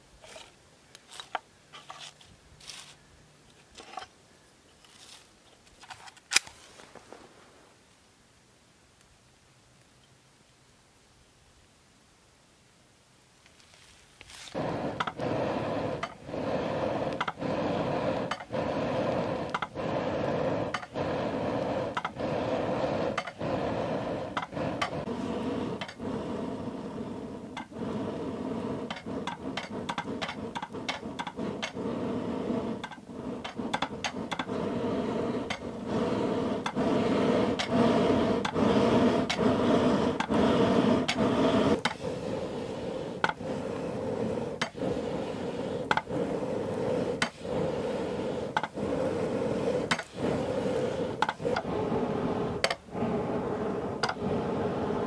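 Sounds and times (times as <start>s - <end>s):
bellows air rushing: 14.4s - 55.0s.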